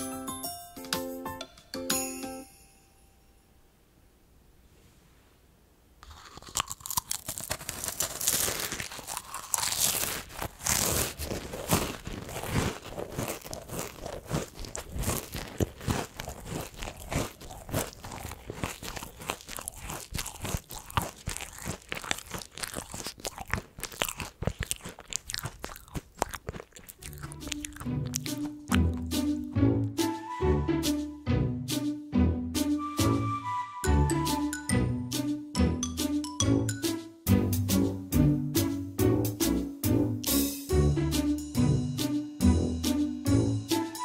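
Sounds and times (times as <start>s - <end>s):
crunching meringue cookies: 6.0s - 29.2s.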